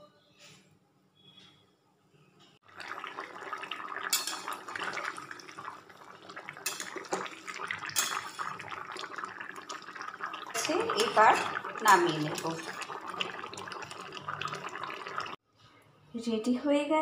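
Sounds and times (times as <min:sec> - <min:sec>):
curry boiling and bubbling: 0:02.6 - 0:15.4.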